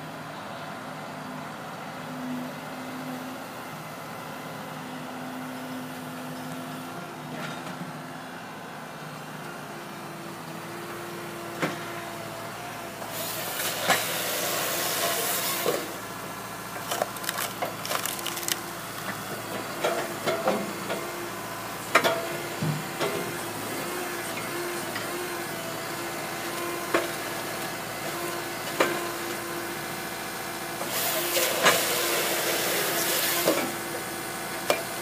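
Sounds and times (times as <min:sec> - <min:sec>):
excavator engine and hydraulics: 0:00.0 - 0:35.0
wood pieces knocking and clattering: 0:16.8 - 0:19.2.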